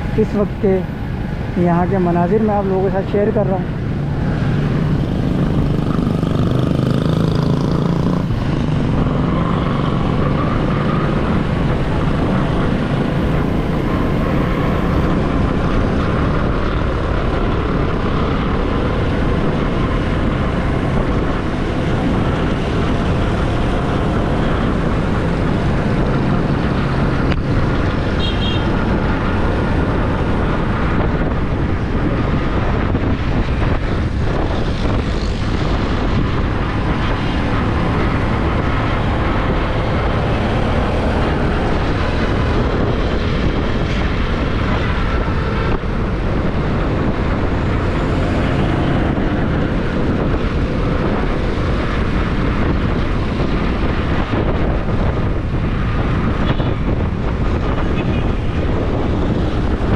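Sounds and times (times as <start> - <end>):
road traffic: 0.0 - 59.9
wind rushing over microphone: 0.0 - 59.9
motorcycle engine running: 3.7 - 28.6.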